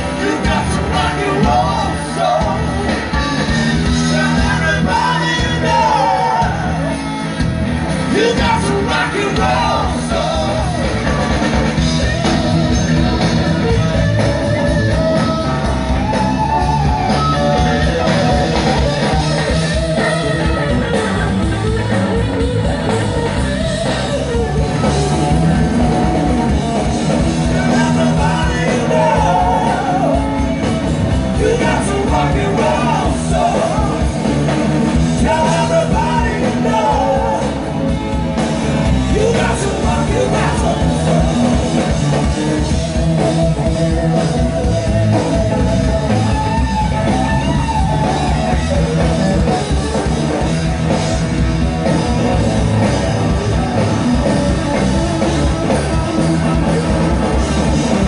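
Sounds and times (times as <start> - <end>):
live rock band playing: 0.0 - 58.0
person singing: 27.4 - 30.5, 31.4 - 34.3, 35.2 - 37.6, 39.1 - 42.6.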